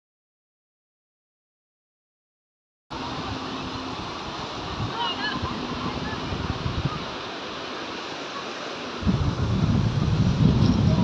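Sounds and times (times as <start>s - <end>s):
river rushing over rocks: 2.9s - 11.0s.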